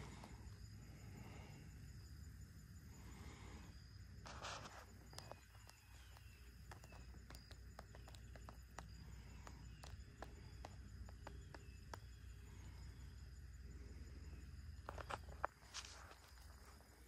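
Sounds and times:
light clicks and ticks: 4.4s - 12.3s.

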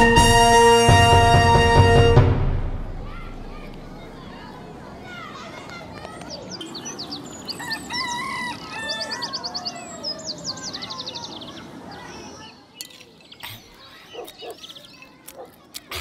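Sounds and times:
birds chirping and trilling: 3.0s - 15.8s.

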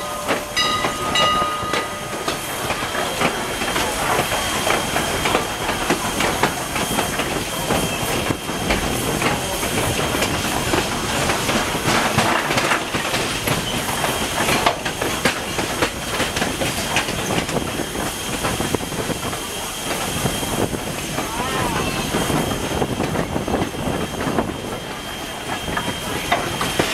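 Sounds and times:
wheels clattering over rail joints: 0.0s - 7.4s, 8.6s - 18.7s
steam hissing: 0.0s - 26.9s
steam locomotive running: 0.0s - 26.9s.

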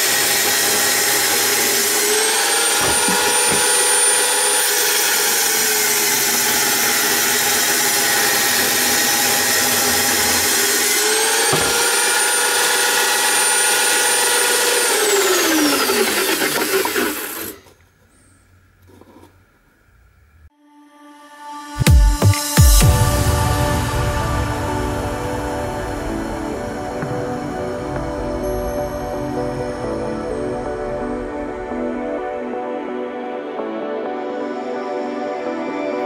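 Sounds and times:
saw blade motor whine: 0.0s - 17.8s.

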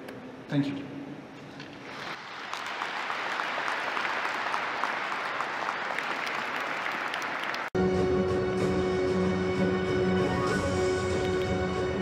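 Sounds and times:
audience applauding: 1.9s - 7.8s, 11.1s - 11.6s.

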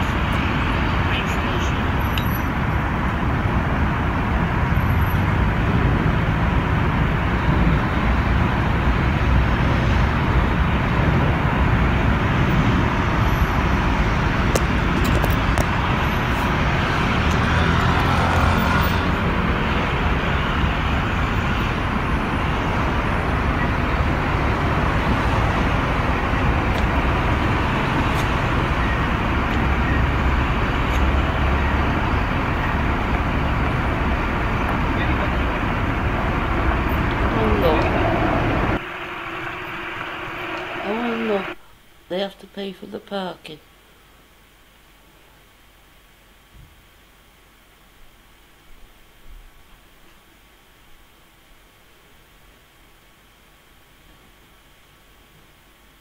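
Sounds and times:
cars passing on street: 0.0s - 41.6s.

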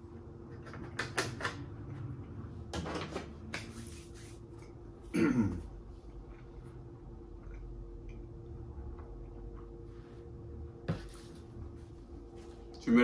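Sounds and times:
burp: 5.1s - 5.6s.

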